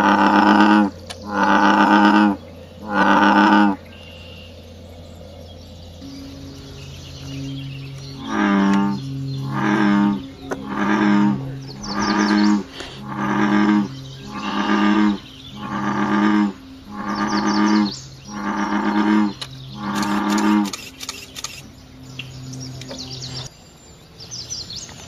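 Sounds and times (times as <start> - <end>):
bullfrog calling: 0.0 - 5.3, 6.0 - 21.6.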